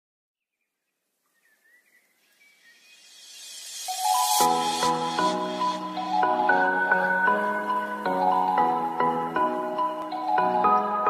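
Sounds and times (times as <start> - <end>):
hiss: 2.6 - 5.9.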